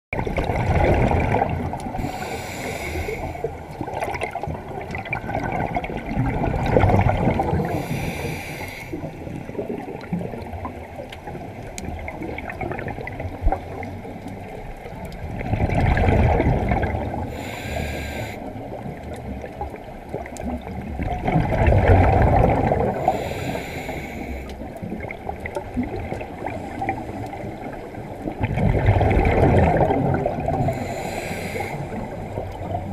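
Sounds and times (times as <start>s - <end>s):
exhaled bubbles rumbling: 0.1s - 32.9s
regulator inhales: 2.0s - 3.5s, 7.6s - 9.2s, 17.3s - 18.5s, 23.0s - 24.6s, 30.6s - 32.3s.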